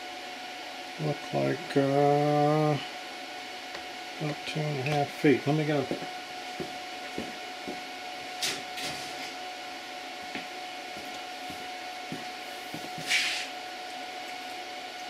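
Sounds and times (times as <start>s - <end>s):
faint steady whine: 0.0s - 15.0s
room hum: 0.0s - 15.0s
rustling scrape on workbench: 8.4s - 9.4s, 12.4s - 13.5s.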